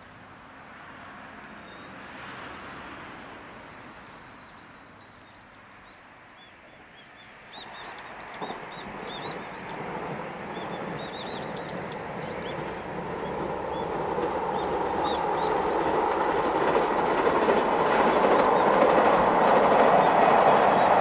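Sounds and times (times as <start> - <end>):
wind: 0.0 - 21.0
distant train rumbling on bridge: 0.4 - 21.0
small birds chirping: 2.7 - 9.9, 10.5 - 16.8.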